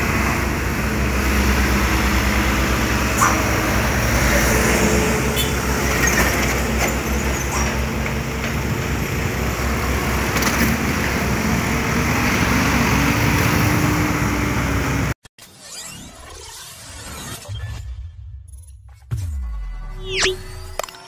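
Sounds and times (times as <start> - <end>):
road traffic rumble: 0.0 - 15.2.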